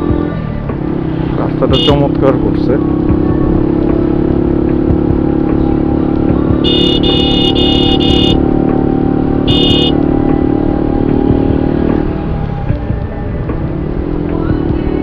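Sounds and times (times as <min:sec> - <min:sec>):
motorcycle engine running: 0:00.0 - 0:15.0
wind and road noise: 0:00.0 - 0:15.0
high-pitched horn beeps: 0:01.7 - 0:02.1, 0:06.6 - 0:08.5, 0:09.4 - 0:10.0.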